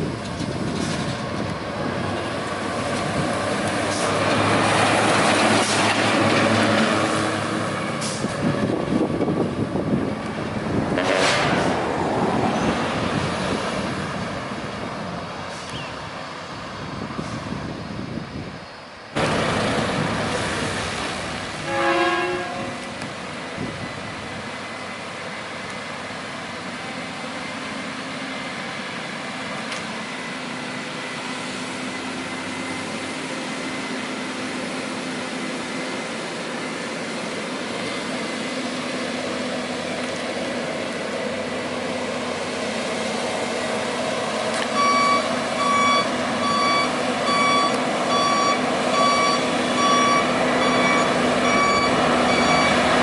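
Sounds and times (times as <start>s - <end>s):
truck diesel engines running: 0.0s - 53.0s
reversing alarm beeping: 44.7s - 53.0s.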